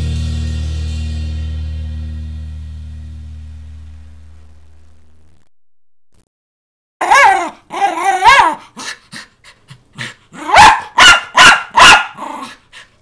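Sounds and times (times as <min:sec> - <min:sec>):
dog yipping: 0:07.0 - 0:08.9, 0:10.4 - 0:12.6
dog barking and yowling: 0:07.0 - 0:09.3, 0:10.0 - 0:12.7.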